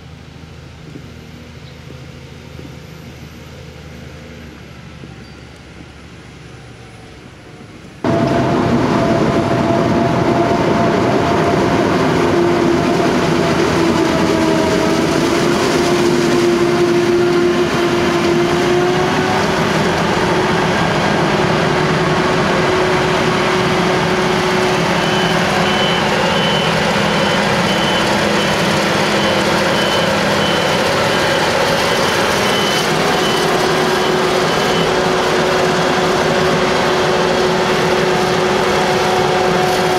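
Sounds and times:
tractor engine: 0:00.0 - 0:39.9
forage harvester chopping with whine: 0:08.0 - 0:39.9.

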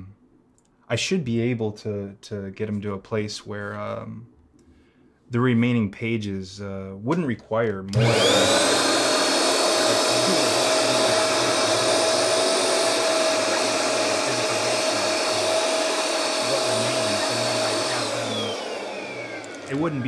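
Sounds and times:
handheld vacuum cleaner whining: 0:07.9 - 0:20.0.

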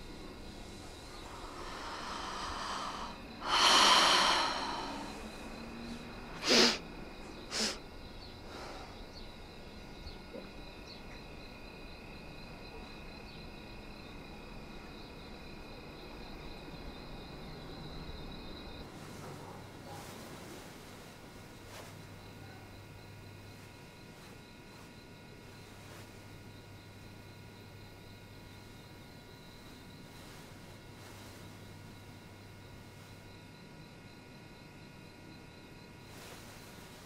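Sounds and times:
woman sighing: 0:01.8 - 0:05.2
woman sniffing sharply: 0:06.4 - 0:06.8, 0:07.5 - 0:07.8.

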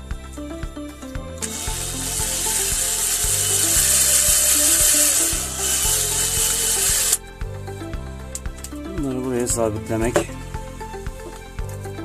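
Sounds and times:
cordless drill boring plastic: 0:01.4 - 0:07.2.

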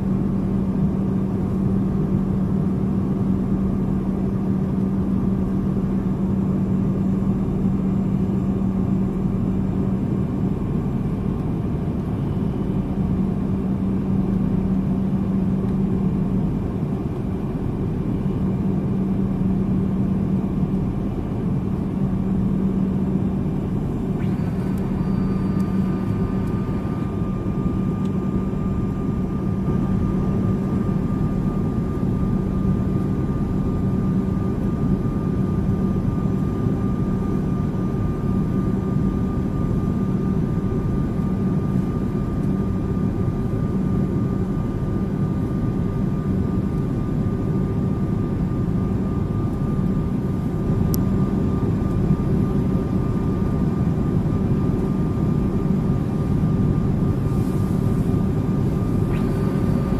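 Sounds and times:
faint steady hum: 0:00.0 - 0:59.9
jet engines and rushing air: 0:42.7 - 0:59.9.

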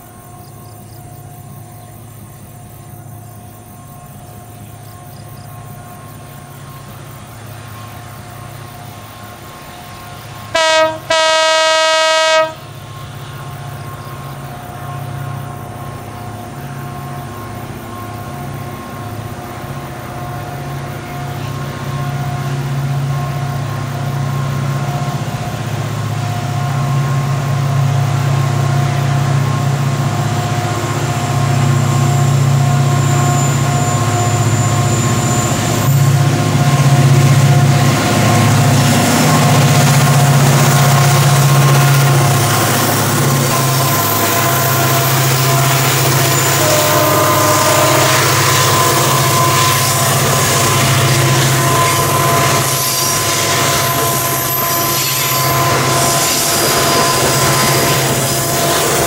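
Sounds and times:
locomotive engine running: 0:00.0 - 0:59.0
train horn blasts: 0:10.4 - 0:12.8, 0:31.3 - 0:59.0.

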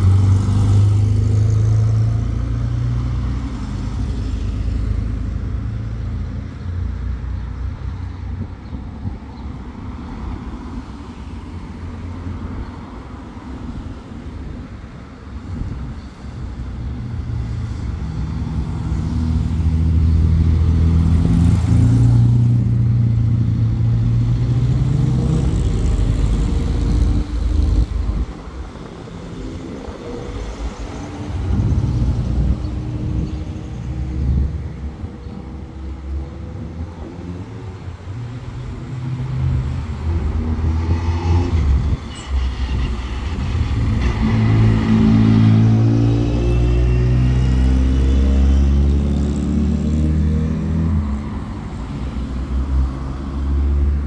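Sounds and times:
cars driving past: 0:16.8 - 0:54.0.

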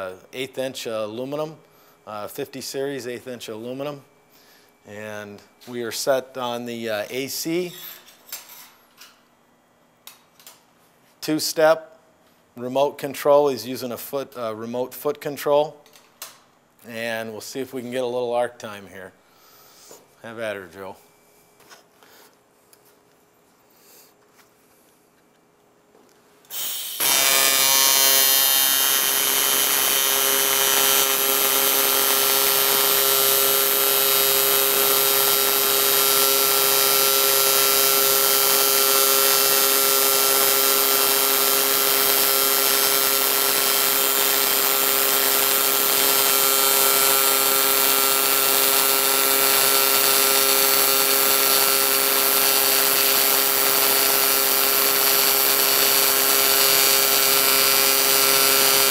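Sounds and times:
welding arc buzzing with hiss: 0:26.4 - 0:58.9.

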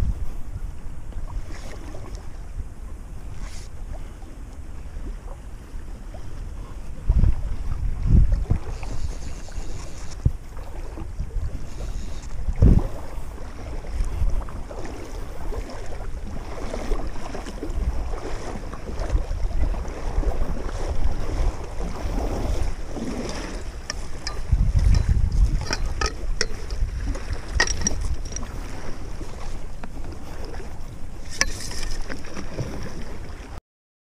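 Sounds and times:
lake water washing: 0:00.0 - 0:33.6
wind buffeting microphone: 0:00.0 - 0:33.6.

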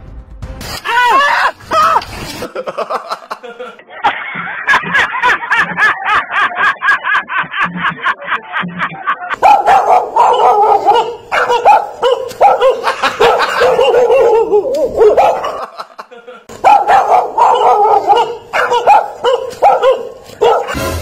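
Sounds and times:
dog barking: 0:09.4 - 0:15.7, 0:16.6 - 0:20.8.

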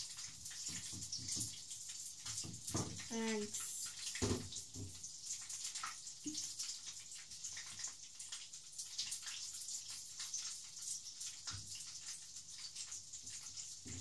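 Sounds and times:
chicken frying in oil: 0:00.0 - 0:14.0.

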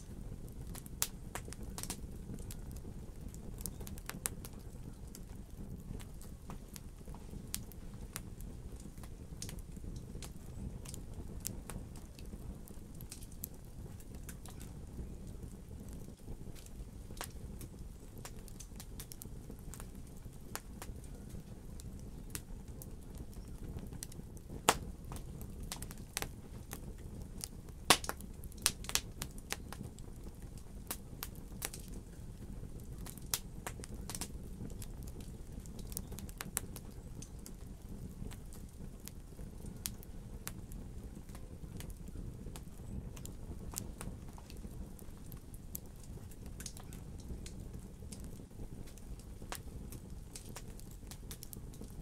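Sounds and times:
fire crackling: 0:00.0 - 0:52.0
low rush of flame: 0:00.0 - 0:52.0
sharp pops and snaps: 0:24.0 - 0:29.9, 0:30.9 - 0:32.0, 0:45.3 - 0:52.0.

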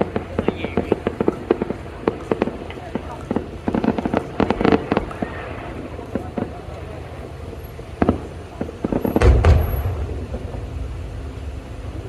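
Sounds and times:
fireworks bursting: 0:00.0 - 0:12.0
deep rumbling boom: 0:08.8 - 0:12.0.

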